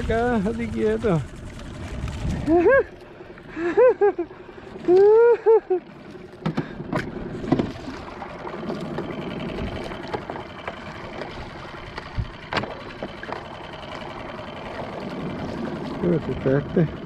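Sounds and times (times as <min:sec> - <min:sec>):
water sloshing against hull: 0:00.0 - 0:17.0.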